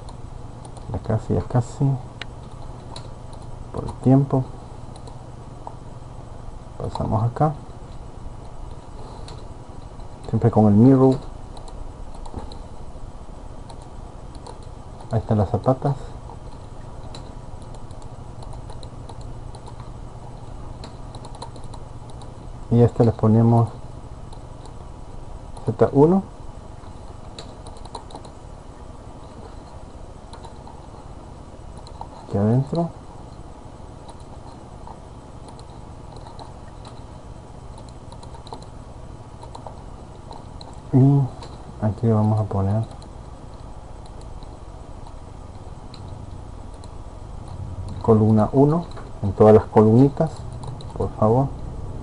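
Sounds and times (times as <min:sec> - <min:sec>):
keyboard and mouse clicks: 0:00.0 - 0:01.0, 0:02.2 - 0:04.0, 0:11.1 - 0:12.6, 0:13.6 - 0:15.2, 0:16.5 - 0:19.9, 0:20.8 - 0:22.4, 0:27.3 - 0:28.4, 0:30.3 - 0:30.8, 0:31.8 - 0:32.4, 0:34.0 - 0:37.1, 0:37.7 - 0:38.7, 0:39.4 - 0:40.8, 0:50.0 - 0:51.1
steady low hum: 0:00.0 - 0:52.0.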